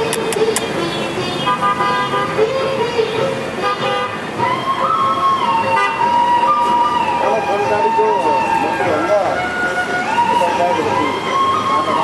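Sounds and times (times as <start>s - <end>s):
street traffic: 0.0s - 12.0s
vehicle horns honking: 1.3s - 4.6s, 5.6s - 6.2s.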